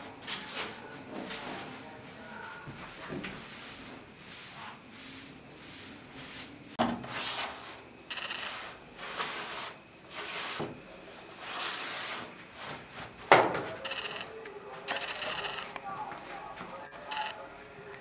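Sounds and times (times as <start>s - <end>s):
hand broom sweeping: 0.0s - 7.9s, 8.5s - 13.0s.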